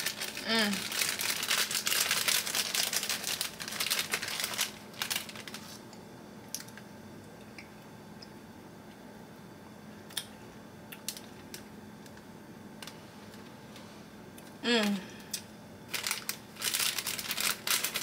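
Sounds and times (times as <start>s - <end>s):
plastic bag crinkling: 0.0s - 5.8s, 15.9s - 18.0s
person humming: 0.4s - 0.9s, 14.6s - 15.3s.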